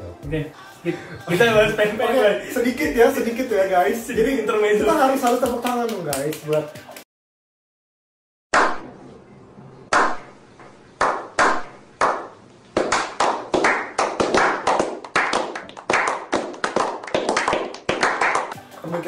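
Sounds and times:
slow hand clapping building to applause: 5.2s - 7.0s, 11.0s - 18.6s.

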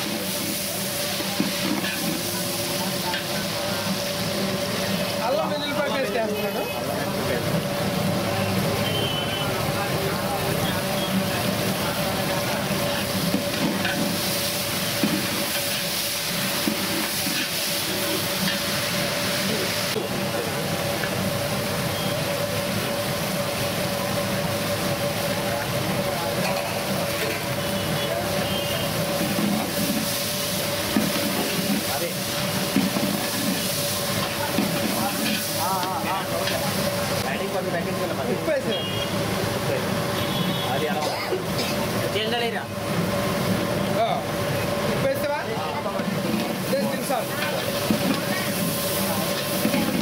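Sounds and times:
spices sizzling in hot oil: 0.0s - 50.0s.

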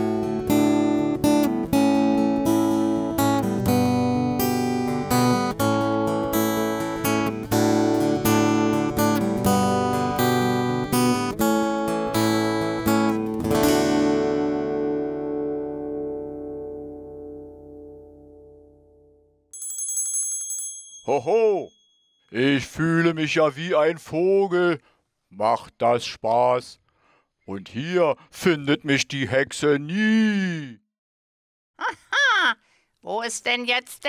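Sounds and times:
strummed acoustic guitar: 0.0s - 16.7s.

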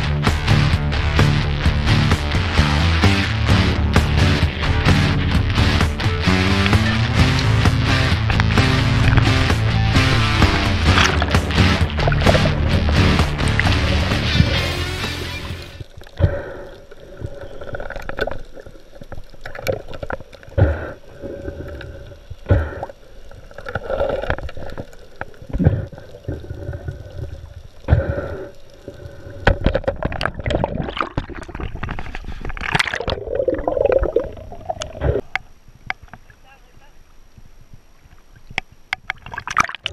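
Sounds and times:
low thumps: 0.0s - 16.4s
underwater gurgling and rushing water: 3.5s - 36.4s, 37.0s - 39.9s.

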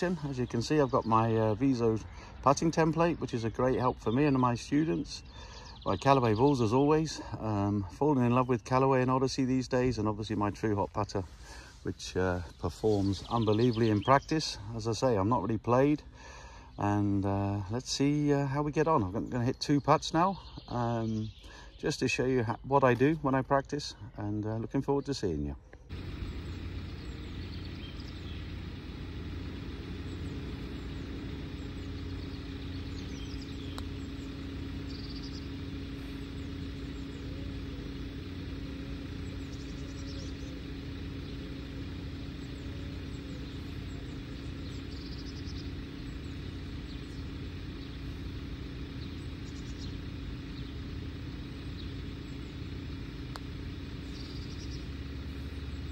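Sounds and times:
engine drone: 0.0s - 19.2s, 25.8s - 55.9s
birds chirping: 0.0s - 55.9s
putter striking golf ball: 25.9s - 55.2s.

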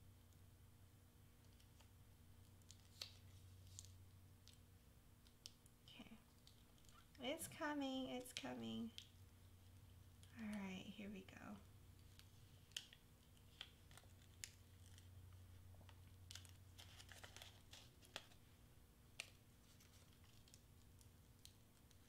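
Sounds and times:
low steady hum: 0.0s - 22.0s
paper crinkling and clicking: 1.4s - 4.6s, 12.0s - 18.5s, 19.1s - 22.0s.

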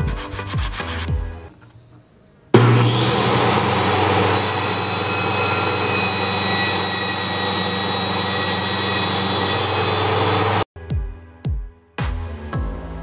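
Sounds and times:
table saw cutting a board: 2.5s - 10.7s.

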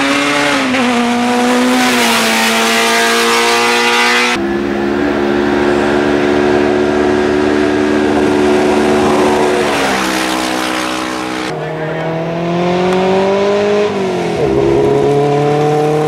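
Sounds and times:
race vehicle engines revving high: 0.0s - 16.0s.

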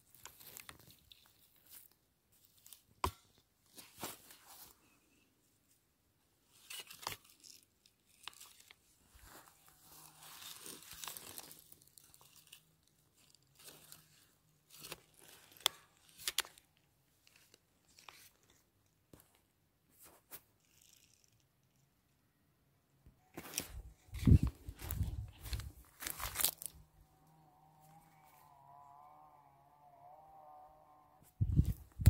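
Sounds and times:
dry plant stems rustling: 0.0s - 2.9s, 6.5s - 16.6s, 23.3s - 28.9s.

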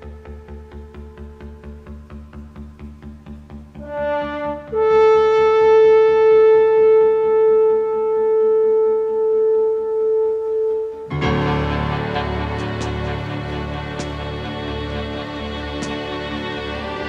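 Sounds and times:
pulsing beat: 11.1s - 17.0s.

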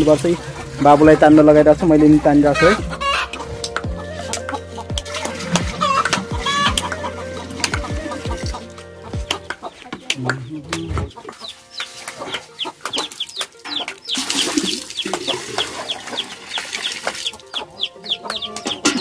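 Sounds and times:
chickens clucking and cheeping: 2.0s - 19.0s
metal bucket clattering: 12.8s - 17.4s, 18.6s - 19.0s.

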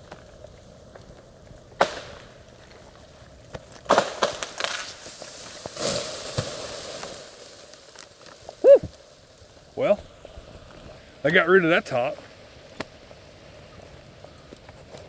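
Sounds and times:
tree cracking and splintering: 0.0s - 11.2s
branches rustling crash: 1.8s - 11.2s.

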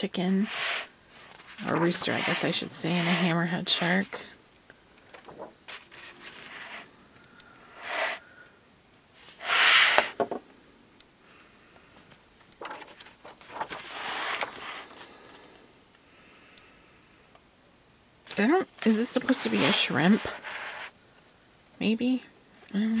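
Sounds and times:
paper pages turning: 0.5s - 4.2s, 5.0s - 6.9s, 12.6s - 15.1s, 18.4s - 20.9s.

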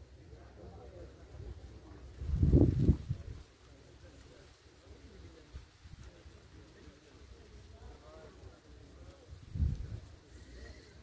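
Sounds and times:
faint outdoor background: 0.0s - 11.0s
low wind buffet on microphone: 1.4s - 3.5s, 8.9s - 11.0s.

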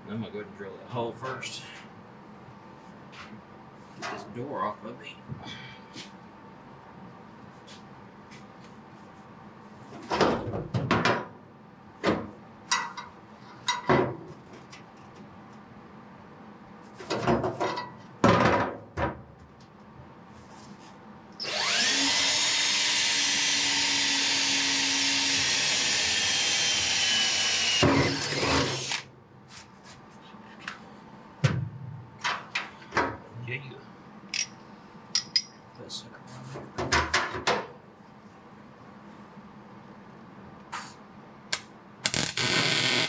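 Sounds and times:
cordless drill boring metal: 21.4s - 29.0s.

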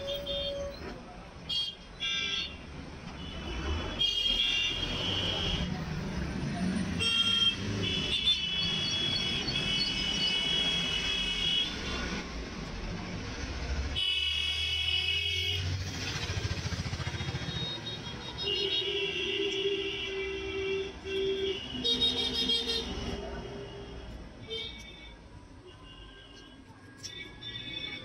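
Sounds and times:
vehicle horns honking: 0.0s - 0.9s, 6.9s - 11.8s, 17.2s - 23.2s
traffic engines rumbling: 0.0s - 28.0s.

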